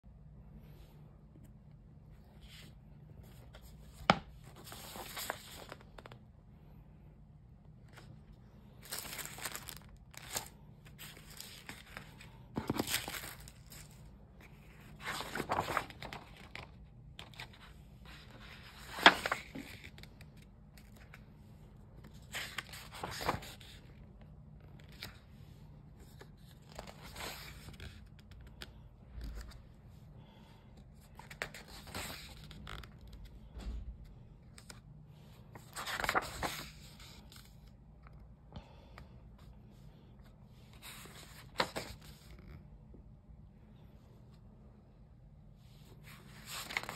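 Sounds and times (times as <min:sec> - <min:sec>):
paper pages turning: 0:02.4 - 0:06.2, 0:07.8 - 0:25.4, 0:26.0 - 0:29.6, 0:31.0 - 0:33.5, 0:35.5 - 0:38.2, 0:40.6 - 0:42.7, 0:45.8 - 0:46.9.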